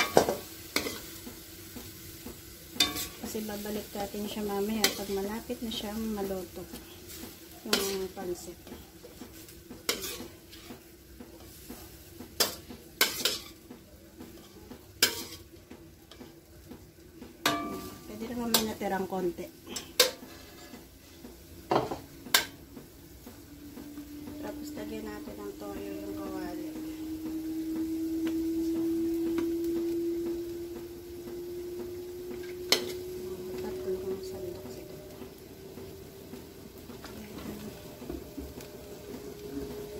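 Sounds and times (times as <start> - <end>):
faint sizzle from pan: 0.0 - 39.9
metal ladle clanking against wok: 2.8 - 3.2, 17.4 - 18.8
rising pure tone: 23.4 - 36.3.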